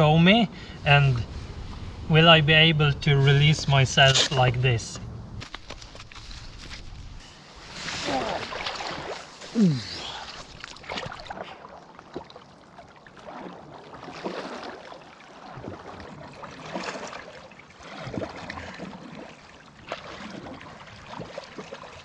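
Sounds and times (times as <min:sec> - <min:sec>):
river water splashing and churning: 0:05.4 - 0:22.0.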